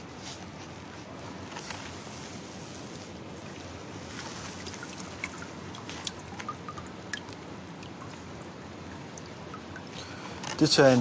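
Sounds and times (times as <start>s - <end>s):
background noise: 0.0s - 11.0s
liquid dripping into plastic bucket: 4.7s - 10.6s.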